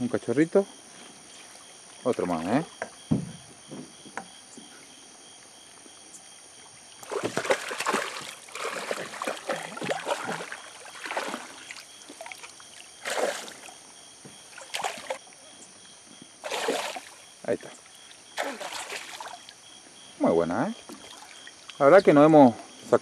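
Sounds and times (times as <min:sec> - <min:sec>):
water splashing: 0:06.9 - 0:15.4, 0:16.4 - 0:19.7, 0:20.8 - 0:21.8.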